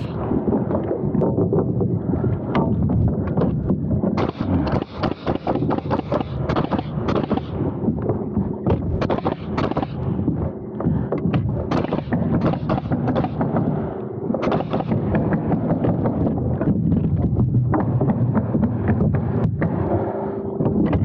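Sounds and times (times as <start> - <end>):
low rumble: 0.0 - 21.0
nail gun firing: 4.2 - 7.6, 8.7 - 10.0, 11.3 - 13.7, 14.4 - 16.2.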